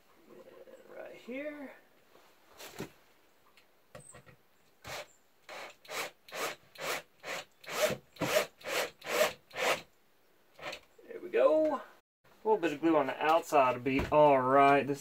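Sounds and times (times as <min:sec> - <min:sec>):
cordless drill drilling into wood: 0:04.8 - 0:09.9.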